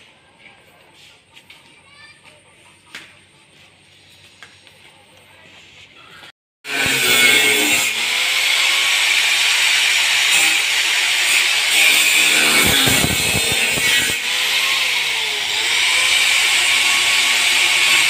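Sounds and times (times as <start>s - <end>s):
angle grinder grinding metal: 6.7s - 18.0s.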